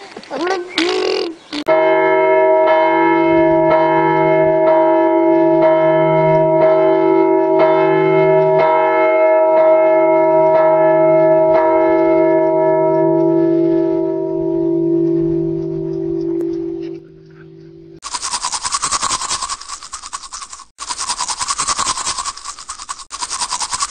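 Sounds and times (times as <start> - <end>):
large church bell tolling: 1.7 - 18.0.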